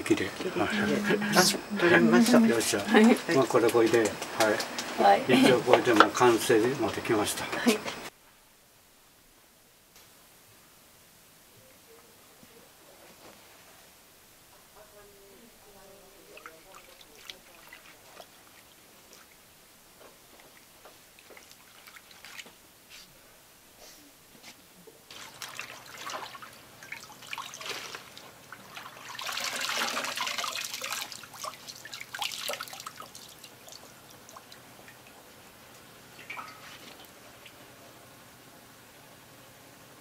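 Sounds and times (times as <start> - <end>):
water splashing and pouring: 21.2 - 22.6, 25.1 - 35.3, 36.1 - 37.5.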